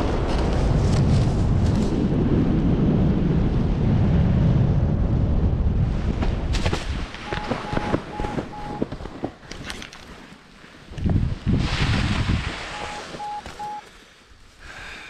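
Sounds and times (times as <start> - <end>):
wind buffeting microphone: 0.0 - 9.4, 10.9 - 13.7
short high beep: 7.3 - 8.9, 12.7 - 13.8.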